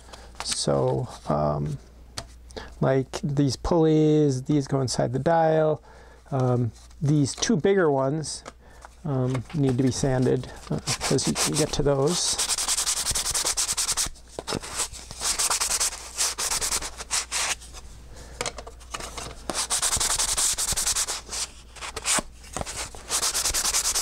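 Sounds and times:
sanding sponge rubbing wood: 10.8s - 14.1s, 14.7s - 17.6s, 19.5s - 21.6s, 22.7s - 24.0s.

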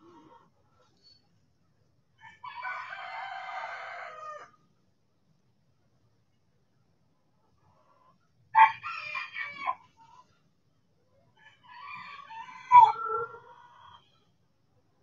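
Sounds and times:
chickens calling: 8.6s - 10.3s, 11.4s - 14.1s.

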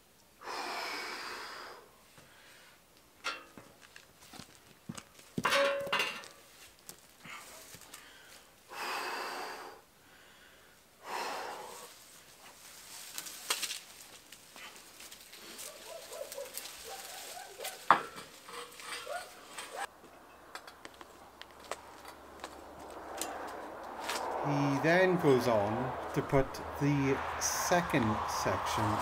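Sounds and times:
person breathing heavily: 0.4s - 2.9s, 7.2s - 12.2s
metal ladder clinking and knocking: 3.2s - 3.8s, 5.4s - 6.5s, 17.8s - 20.8s
sharp metal clang: 5.4s - 6.4s.

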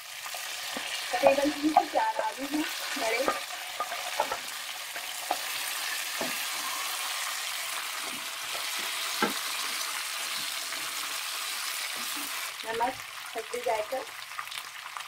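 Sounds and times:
potatoes sizzling in oil: 0.0s - 15.0s
spatula knocking against pan: 3.2s - 4.5s.

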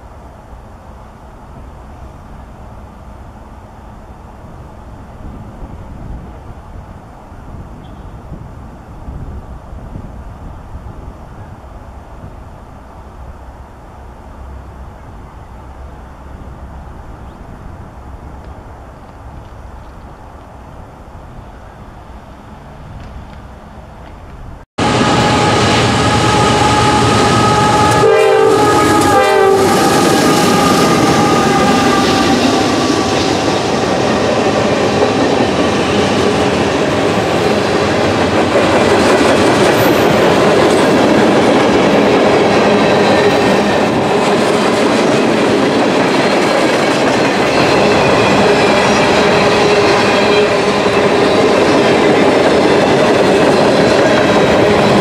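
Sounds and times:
freight cars rolling on rails: 11.8s - 55.0s
train horn: 24.8s - 34.2s.

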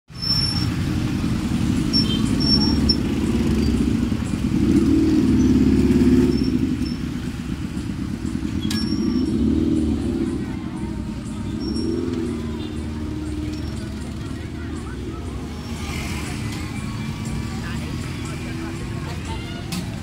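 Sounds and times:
motorbike and scooter engines in traffic: 0.1s - 20.0s.

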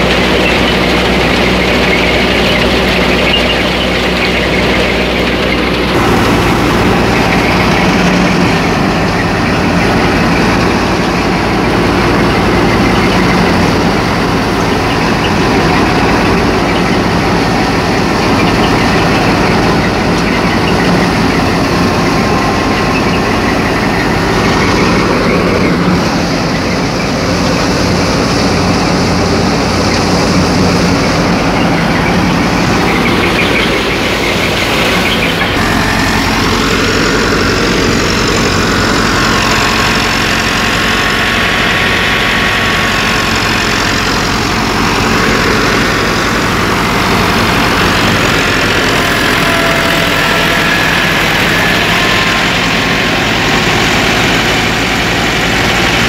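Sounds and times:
steady low hum: 0.0s - 18.2s
thresher running: 0.0s - 56.0s
tractor diesel engine: 0.0s - 56.0s.

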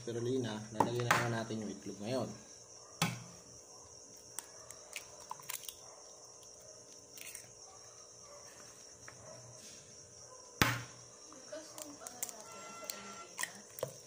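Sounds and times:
egg cracking: 4.2s - 7.6s.

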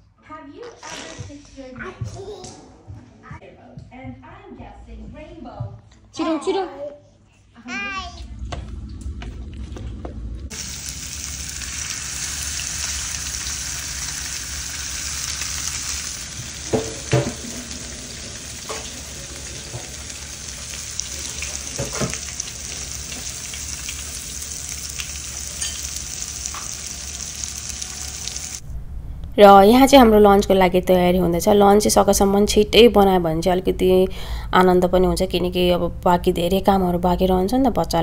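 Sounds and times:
fish sizzling in a pan: 10.5s - 28.6s.

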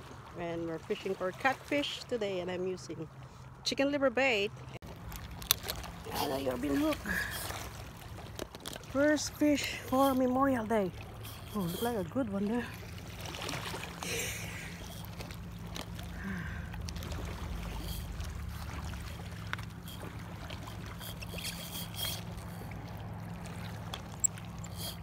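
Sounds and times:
small waves lapping on rocks: 0.0s - 25.0s
steady low hum: 9.3s - 25.0s.

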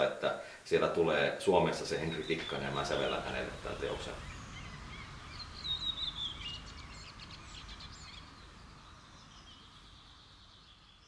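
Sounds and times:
songbirds chirping and whistling: 1.7s - 11.0s
low rumble: 2.5s - 10.9s.

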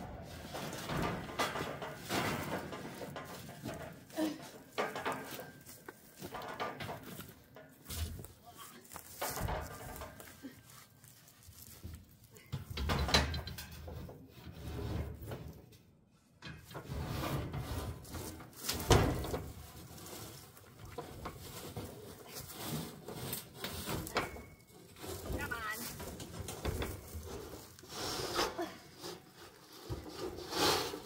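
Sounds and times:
steel plate scraping against bars: 0.0s - 8.4s, 16.5s - 31.0s.

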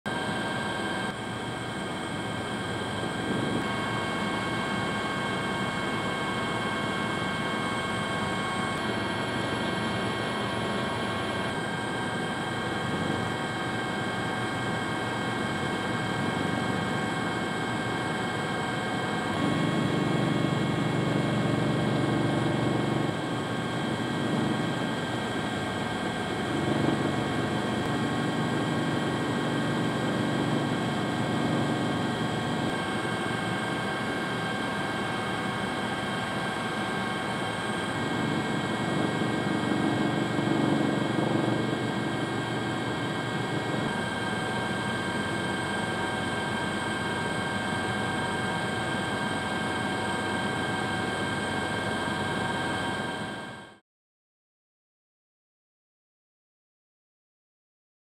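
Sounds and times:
helicopter engine and rotor: 0.1s - 53.8s.

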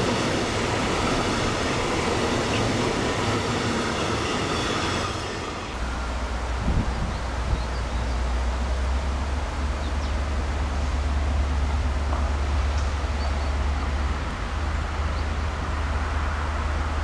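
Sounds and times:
wind hiss: 0.0s - 9.6s
distant locomotive rumble: 0.0s - 17.0s.

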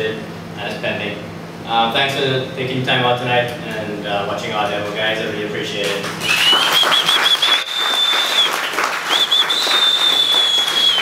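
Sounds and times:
audience applauding: 6.1s - 11.0s
high warbling whistle: 6.2s - 11.0s.

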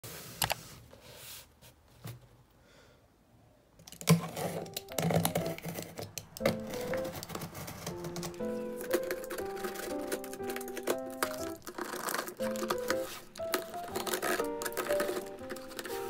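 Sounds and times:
knife slicing packing tape: 4.0s - 16.0s.

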